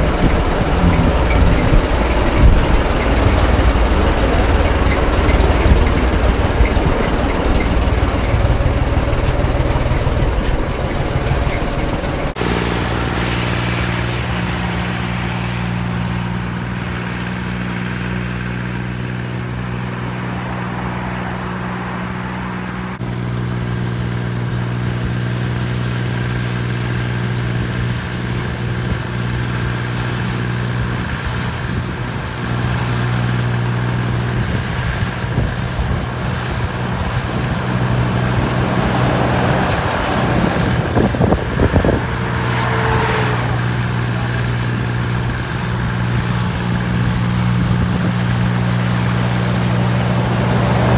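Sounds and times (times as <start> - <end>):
heavy truck passing: 0.0 - 10.5, 12.2 - 50.9
tractor diesel engine droning: 0.0 - 50.9
tyre and road noise: 0.0 - 50.9.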